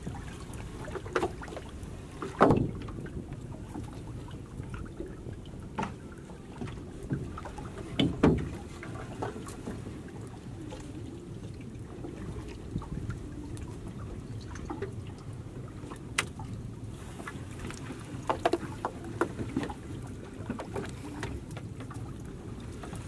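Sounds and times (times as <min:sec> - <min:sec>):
water drips and splashes: 0:00.0 - 0:23.0
light knocks on wooden boat: 0:02.2 - 0:03.0, 0:08.0 - 0:08.6.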